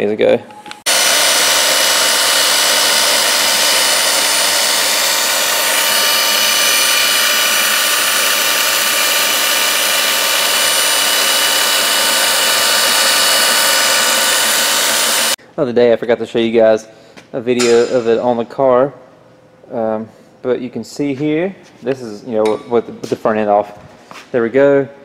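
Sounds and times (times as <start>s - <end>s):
belt sander running: 0.9s - 15.4s.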